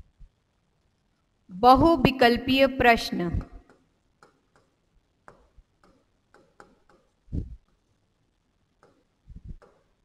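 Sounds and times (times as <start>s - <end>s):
stylus tapping on screen: 3.3s - 7.9s, 8.8s - 10.0s.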